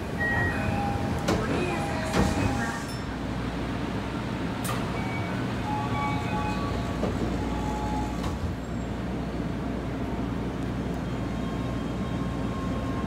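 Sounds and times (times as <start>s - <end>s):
subway door chime: 0.0s - 3.3s, 4.6s - 9.5s, 11.0s - 13.0s
stopped train hum: 0.0s - 13.0s.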